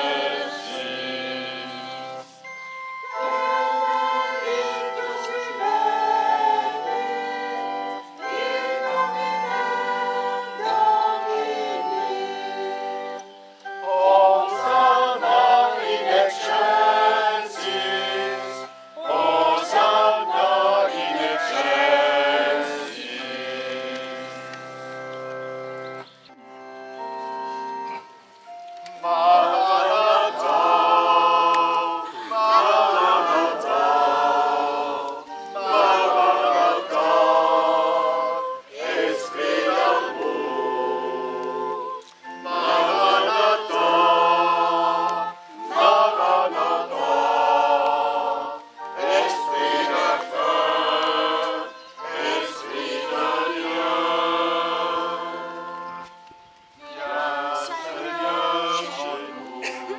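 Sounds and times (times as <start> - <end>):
group singing a hymn: 0.0 - 25.0, 28.9 - 59.9.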